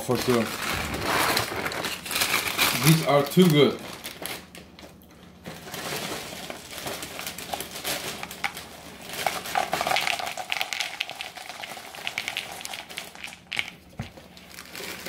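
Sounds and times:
plastic bag crinkling: 0.0s - 15.0s
cereal pouring into plastic bowl: 6.3s - 13.8s.

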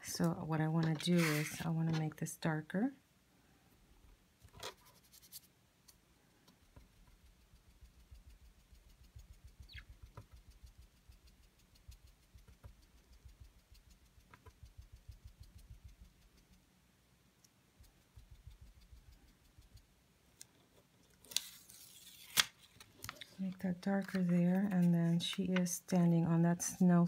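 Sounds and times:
paper rustling: 0.8s - 2.0s, 21.0s - 25.8s
foam pad rubbing on cardstock: 1.1s - 1.7s.

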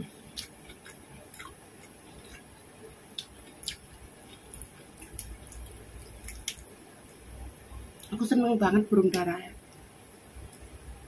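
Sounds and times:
person chewing food: 0.0s - 7.2s.

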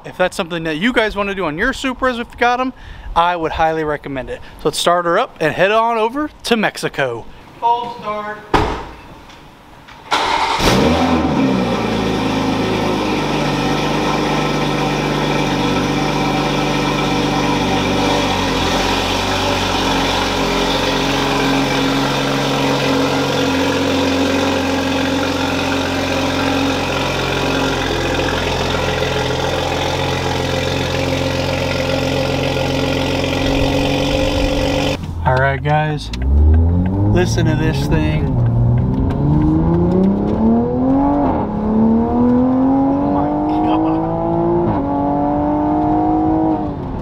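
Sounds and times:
car engine starting and idling: 10.0s - 47.0s.

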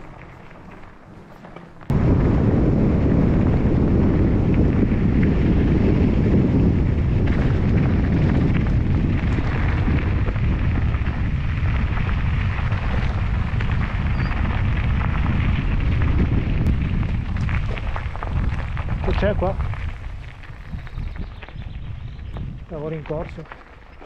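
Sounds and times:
bike clicks and rattles: 0.0s - 1.9s, 22.3s - 24.0s
wind buffeting microphone: 0.0s - 24.0s.

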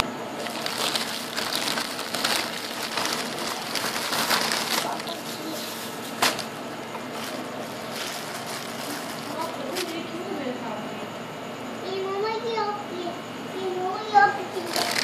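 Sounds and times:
plastic bags rustling: 0.4s - 10.2s, 14.5s - 15.0s.

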